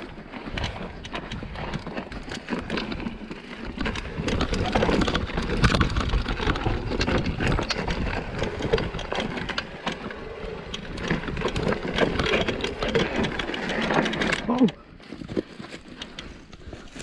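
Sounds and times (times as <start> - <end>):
bike chain and frame clattering: 0.0 - 17.0
tyres crunching over rocks: 0.0 - 17.0.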